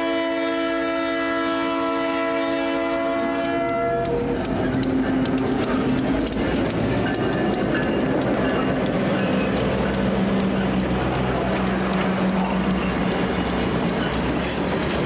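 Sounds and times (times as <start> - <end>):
diesel locomotive engine passing: 0.0 - 15.0
wheels clicking over rail joints: 3.3 - 15.0.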